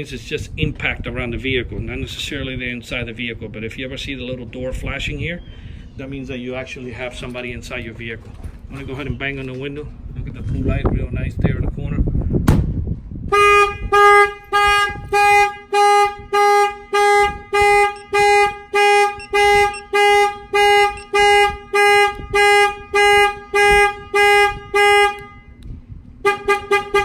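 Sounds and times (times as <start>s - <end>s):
pulsing car alarm tone: 16.4s - 23.0s
short alarm chirps: 17.8s - 21.4s.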